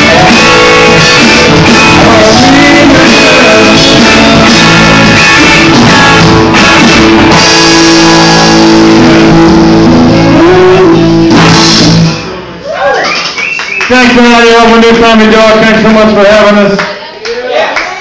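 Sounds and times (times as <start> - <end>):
live rock band playing: 0.0 - 13.9.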